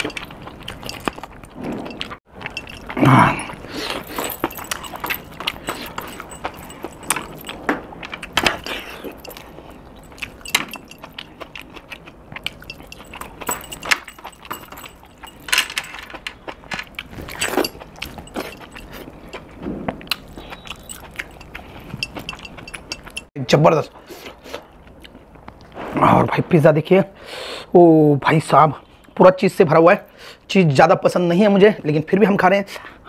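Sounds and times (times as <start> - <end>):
wet chewing smacks: 0.0 - 13.5, 16.4 - 23.3
bracelets and rings jingling: 0.0 - 19.6, 20.2 - 23.3.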